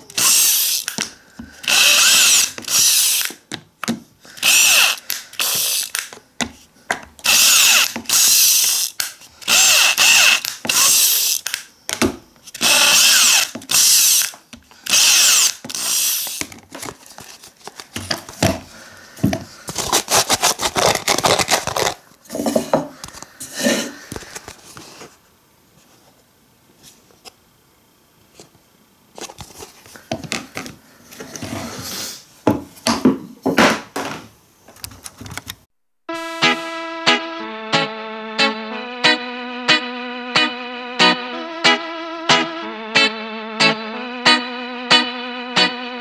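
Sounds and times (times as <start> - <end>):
power drill drilling plastic: 0.1 - 3.4, 4.4 - 6.1, 7.2 - 11.6, 12.6 - 16.5.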